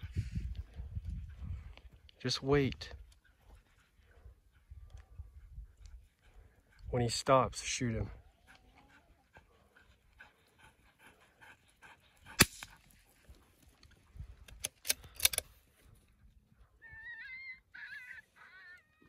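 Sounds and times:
sharp crack: 12.3s - 12.8s
dog whining: 16.8s - 19.0s.

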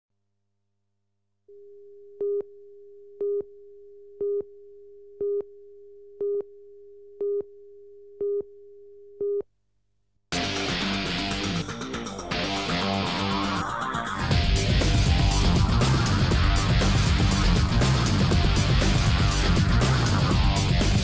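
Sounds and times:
rock music with guitar: 10.3s - 21.0s.

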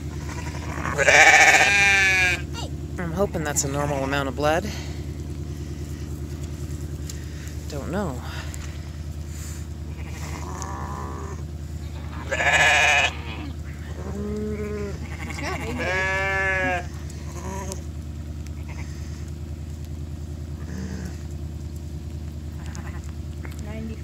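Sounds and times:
steady low hum: 0.0s - 24.0s
sheep bleating: 0.1s - 2.6s, 9.9s - 17.8s, 18.6s - 19.0s, 22.5s - 23.1s.

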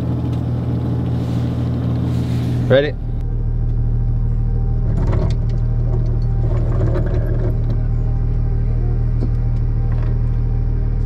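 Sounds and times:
diesel engine idling: 0.0s - 11.0s
anchor gear clanking: 4.8s - 8.5s.

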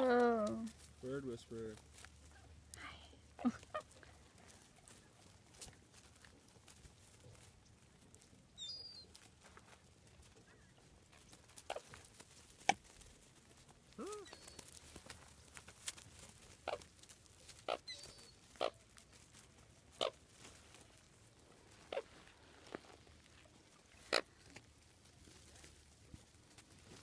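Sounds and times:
coots giving clipped calls: 10.4s - 12.8s, 14.0s - 15.9s, 16.5s - 19.2s, 19.9s - 20.2s, 21.7s - 23.0s, 23.8s - 24.6s.

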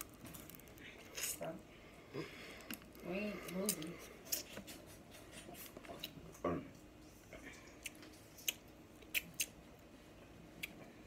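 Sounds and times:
crab shells cracking: 0.0s - 1.4s.

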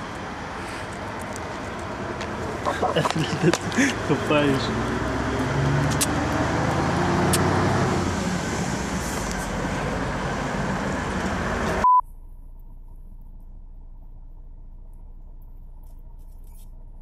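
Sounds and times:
vehicle engine rumble: 0.0s - 17.0s
loud single-pitch beep: 11.8s - 12.1s.

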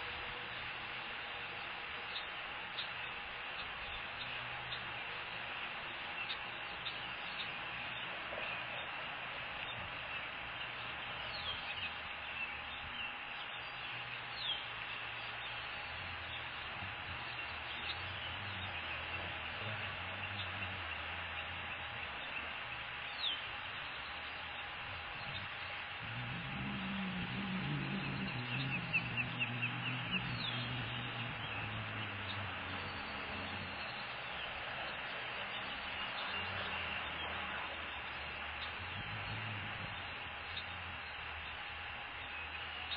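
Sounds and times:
steady outdoor hiss: 0.0s - 42.9s
wind: 0.0s - 42.9s
osprey chirping: 9.6s - 41.2s
water noise: 24.4s - 42.8s.

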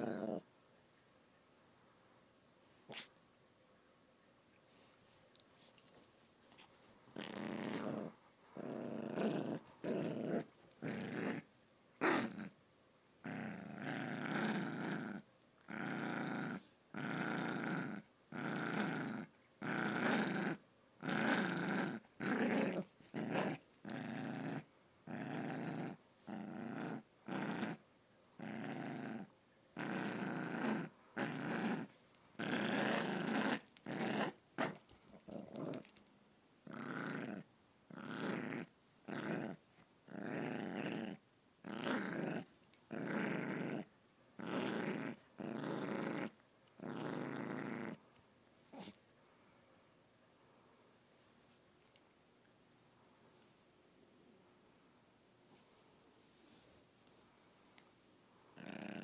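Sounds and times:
small dog growling: 0.0s - 0.5s, 7.2s - 12.6s, 13.2s - 27.8s, 28.4s - 36.0s, 36.6s - 48.0s, 48.7s - 49.0s, 58.5s - 59.0s.

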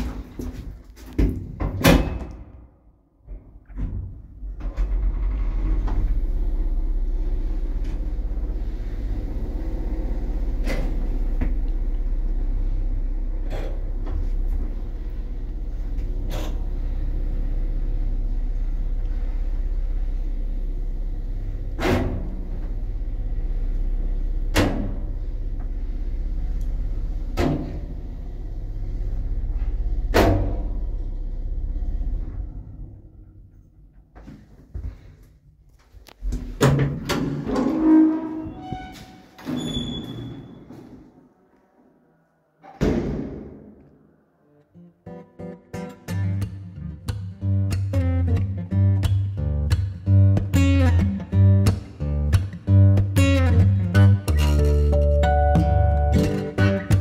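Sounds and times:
lift doors clunking shut: 3.4s - 11.7s
lift car humming and rumbling: 4.4s - 33.7s, 36.0s - 42.4s.

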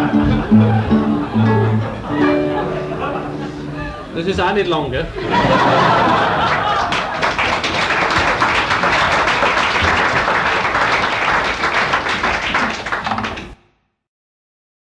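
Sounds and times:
audience applauding: 5.3s - 13.6s.

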